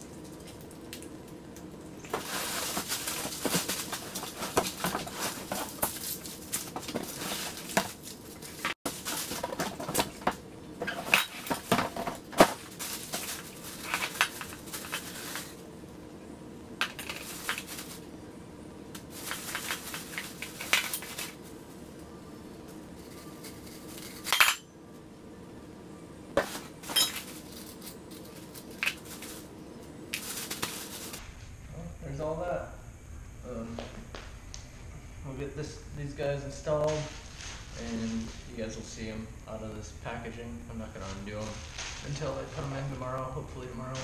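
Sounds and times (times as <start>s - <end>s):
plastic wrap rustling: 2.0s - 15.6s, 16.9s - 18.1s, 19.0s - 21.9s, 26.4s - 31.2s
packing paper crumpling: 2.1s - 10.2s, 12.4s - 15.6s, 17.0s - 18.0s, 19.0s - 21.8s, 27.2s - 29.5s, 30.1s - 31.2s.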